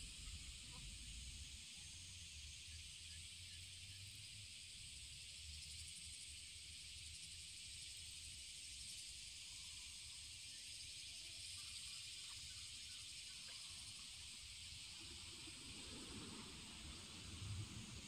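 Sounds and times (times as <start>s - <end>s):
high-pitched insect chorus: 0.0s - 18.0s
low wind rumble on microphone: 14.9s - 18.0s.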